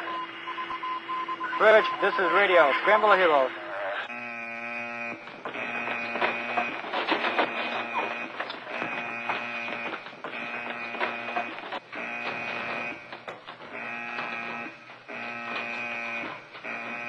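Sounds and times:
ship's alarm buzzer blasts: 0.0s - 17.0s
running footsteps: 5.2s - 17.0s.

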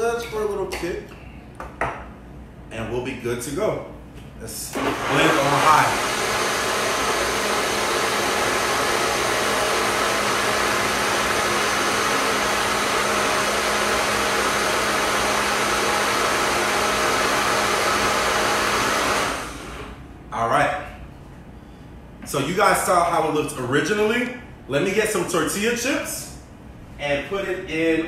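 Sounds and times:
blender motor whirring: 4.7s - 20.0s.

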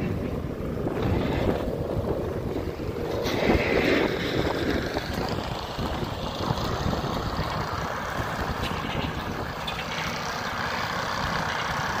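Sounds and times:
diesel engine running: 0.0s - 12.0s.

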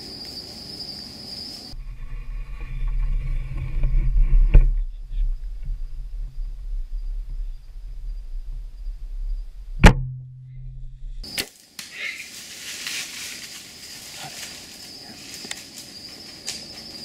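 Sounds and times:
high insect drone: 0.0s - 9.8s, 10.5s - 17.0s
low ringing hum: 1.7s - 11.4s
bowstring snap: 11.2s - 12.0s
rustling and light clicks: 11.8s - 16.9s.

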